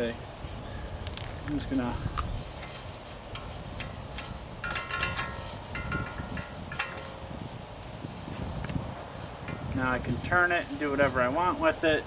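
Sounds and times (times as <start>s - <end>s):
metal-on-metal clicks and clinks: 2.2s - 7.4s
metallic rings: 2.5s - 8.2s.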